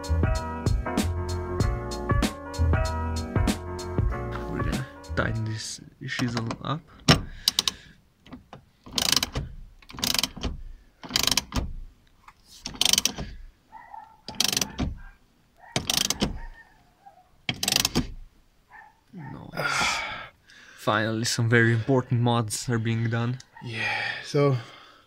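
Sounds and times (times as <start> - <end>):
ratchet wrench clicking: 7.4 - 7.8, 8.9 - 11.6, 12.6 - 13.2, 14.3 - 14.8, 15.8 - 16.3, 17.5 - 18.0.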